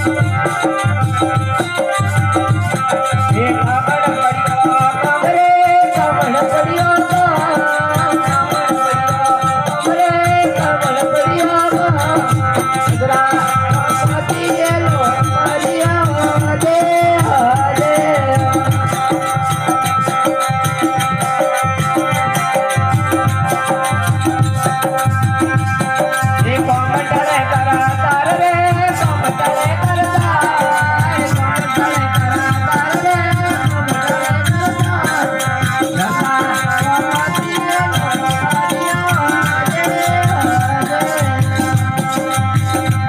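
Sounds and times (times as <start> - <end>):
regular drum beat: 0.0 - 43.0
stringed instrument melody: 0.0 - 43.0.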